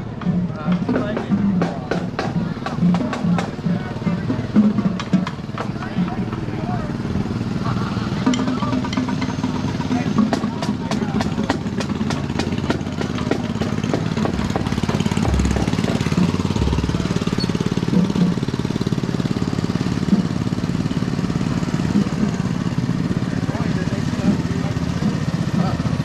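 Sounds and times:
rapid drumbeat: 0.0 - 6.6, 8.2 - 26.0
small car engines driving past: 12.9 - 25.9.

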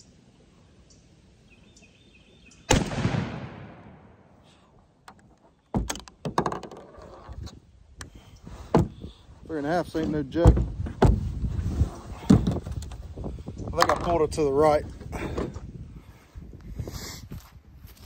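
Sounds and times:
shotgun blast: 2.7 - 4.3.

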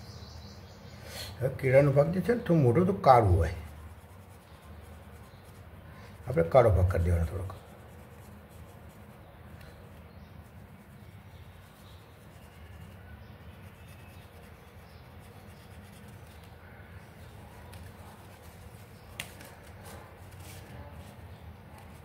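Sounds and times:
marker strokes on paper: 2.0 - 22.0
sharp click or paper rustle: 19.1 - 20.4.

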